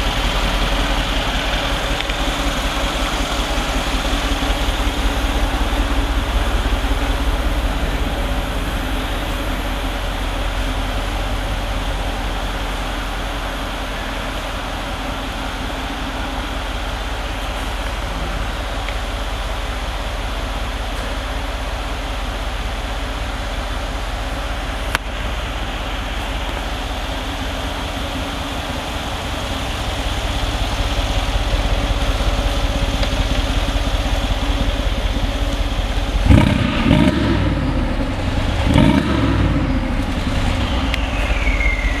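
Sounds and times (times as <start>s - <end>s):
car engine idling: 0.0s - 42.0s
engine revving: 36.0s - 42.0s.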